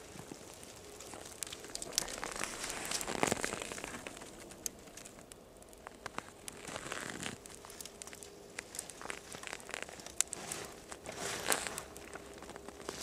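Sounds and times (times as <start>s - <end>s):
kindling fire crackling: 0.0s - 13.0s.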